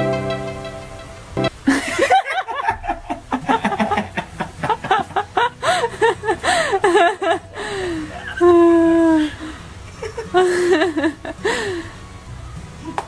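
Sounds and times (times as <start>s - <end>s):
background music: 0.0s - 13.0s
person laughing heartily: 1.6s - 11.8s.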